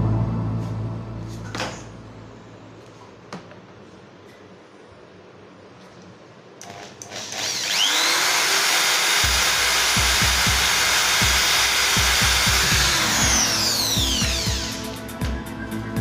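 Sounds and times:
electric drill whining: 0:06.6 - 0:15.1.

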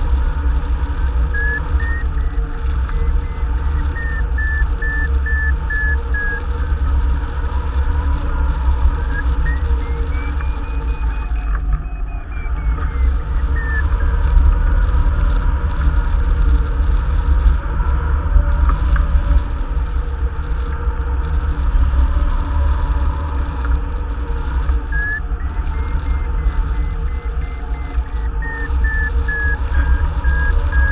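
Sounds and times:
low rumble: 0:00.0 - 0:30.9
variometer electronic beeping tone: 0:01.2 - 0:06.9, 0:08.2 - 0:15.2, 0:24.4 - 0:30.9.

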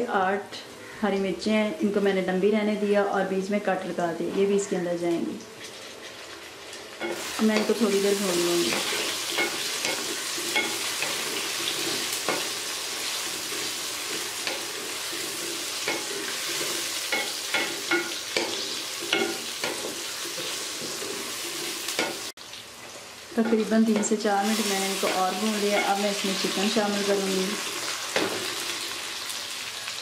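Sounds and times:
oil sizzling in a pan: 0:05.6 - 0:30.0.

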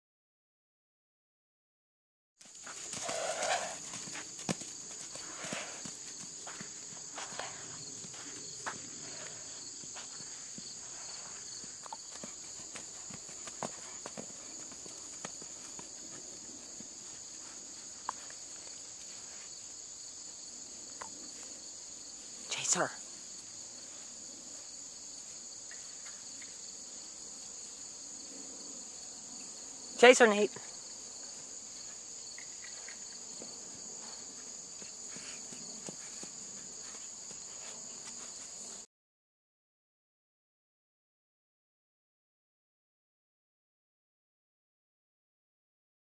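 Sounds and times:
hooves thudding on sand: 0:02.4 - 0:19.6, 0:32.6 - 0:38.8
insects chirring: 0:02.4 - 0:38.8.

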